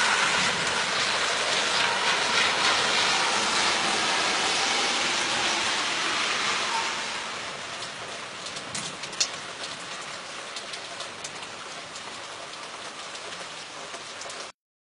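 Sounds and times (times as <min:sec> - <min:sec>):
rain falling: 0:00.0 - 0:14.5
raindrops ticking: 0:07.5 - 0:14.5.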